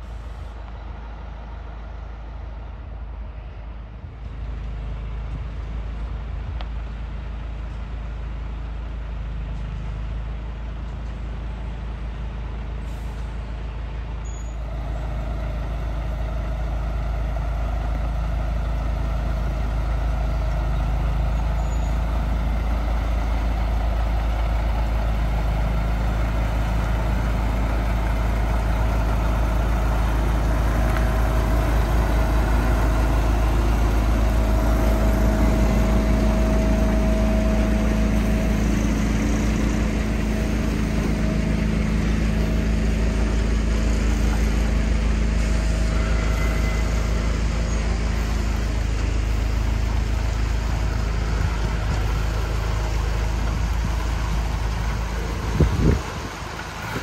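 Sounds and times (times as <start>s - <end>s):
vehicle rumble with road noise: 0.0s - 57.0s.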